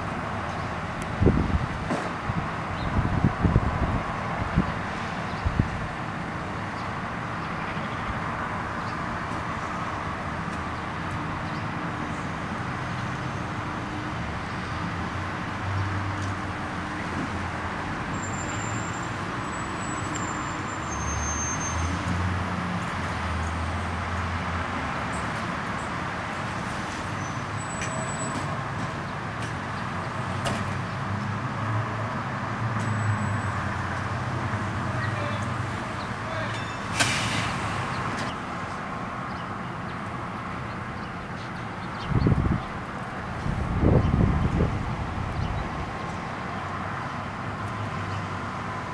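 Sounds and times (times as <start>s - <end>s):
vehicle engine rumble: 0.0s - 48.9s.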